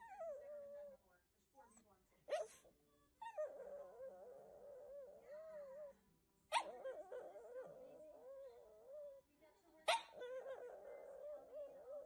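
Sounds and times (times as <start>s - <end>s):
dog whining: 3.2s - 9.2s, 10.0s - 12.0s.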